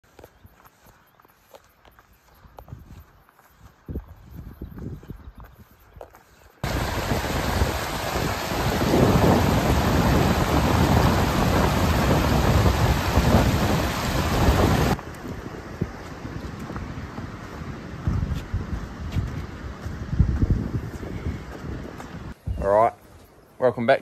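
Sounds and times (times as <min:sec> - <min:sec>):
footsteps through long grass: 0:00.0 - 0:06.7, 0:15.0 - 0:22.4
river rushing over stones: 0:06.6 - 0:15.1.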